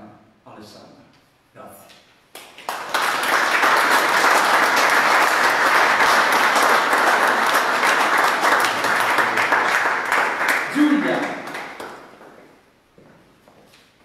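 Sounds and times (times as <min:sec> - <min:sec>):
people applauding: 0:02.3 - 0:12.6.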